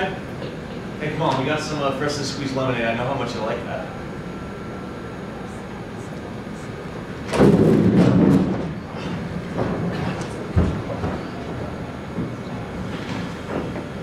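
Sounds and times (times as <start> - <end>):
chairs scraping: 7.3 - 13.9.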